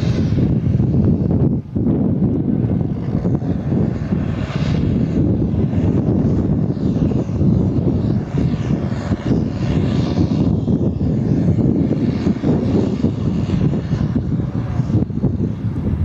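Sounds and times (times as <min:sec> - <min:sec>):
diesel engine droning: 0:00.0 - 0:16.0.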